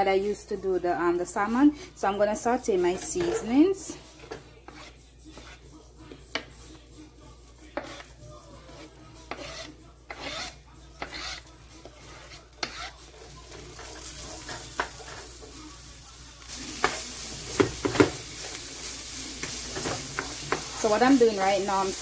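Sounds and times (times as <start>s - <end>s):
vegetables scraped into a pan: 2.7s - 6.5s, 7.7s - 22.0s
vegetables sizzling: 11.0s - 22.0s
wooden spoon knocking on pan: 16.8s - 18.2s, 19.4s - 20.7s.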